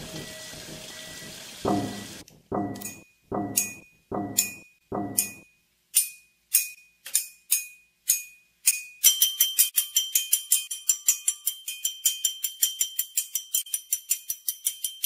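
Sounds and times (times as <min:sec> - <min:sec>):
quick jingling beat: 0:01.7 - 0:05.4
struck clinking chime notes: 0:01.7 - 0:05.4.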